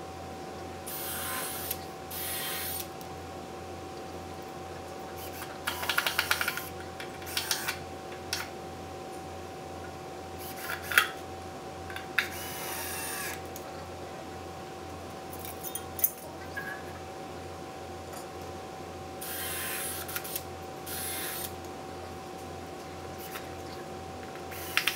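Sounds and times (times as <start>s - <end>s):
faint hum: 0.0s - 24.9s
rapid clicks: 5.6s - 7.8s.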